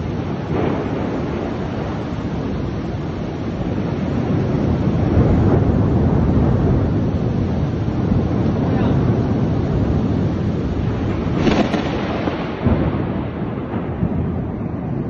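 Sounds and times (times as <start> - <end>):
heavy rain pouring: 0.0 - 15.0
wind buffeting microphone: 0.0 - 15.0.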